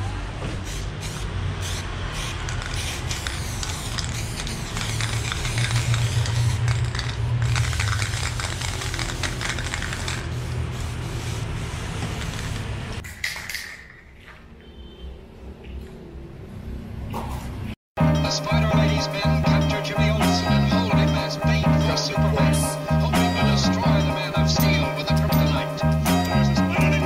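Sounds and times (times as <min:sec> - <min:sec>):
spray paint can hissing: 0:00.5 - 0:12.7.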